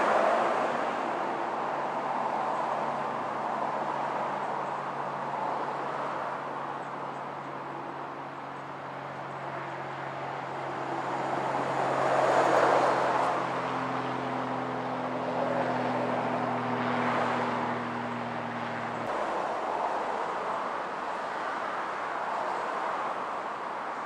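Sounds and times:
road vehicle passing: 9.8 - 21.7.

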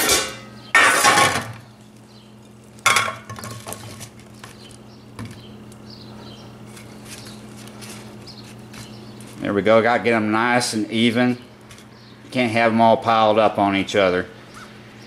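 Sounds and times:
metal platter clattering: 0.0 - 1.5
steady low hum: 0.0 - 15.0.

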